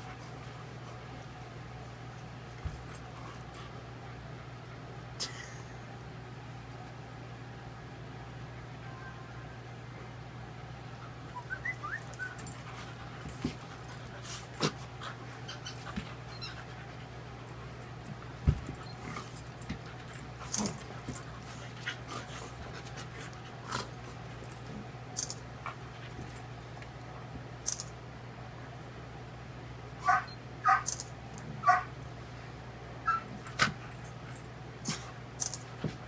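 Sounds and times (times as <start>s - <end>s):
faint dog whines: 8.7s - 9.7s
dogs scuffling and clicking: 11.8s - 27.0s, 33.3s - 36.0s.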